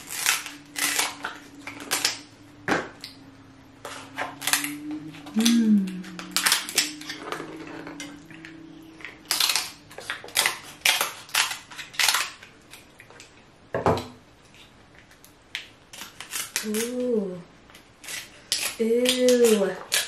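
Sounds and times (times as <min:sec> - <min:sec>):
crab shells cracking: 0:09.2 - 0:13.2.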